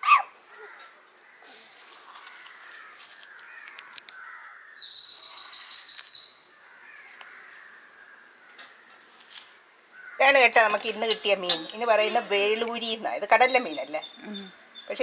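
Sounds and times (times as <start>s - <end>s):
crows cawing: 2.2s - 5.6s, 6.5s - 9.2s, 9.9s - 10.8s
faint clicks: 3.2s - 4.6s.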